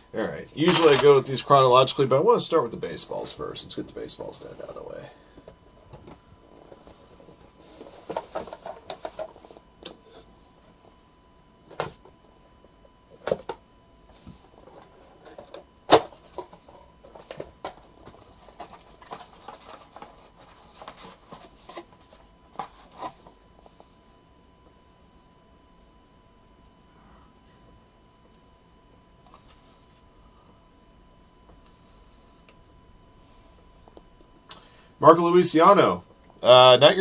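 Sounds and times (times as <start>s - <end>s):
packaging crinkling and rustling: 14.5s - 23.3s.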